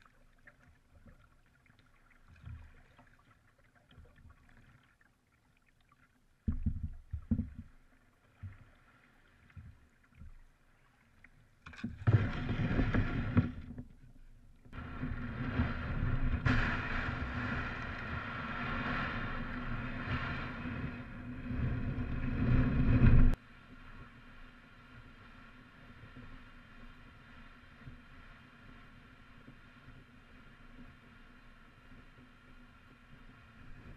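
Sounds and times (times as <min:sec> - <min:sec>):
hull scraping over shingle: 0:12.0 - 0:13.9.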